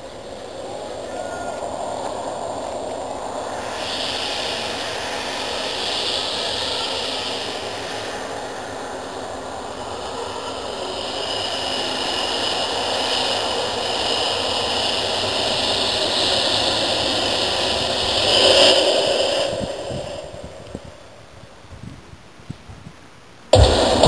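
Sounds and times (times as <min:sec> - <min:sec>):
rushing roar sound effect: 0:23.6 - 0:24.0.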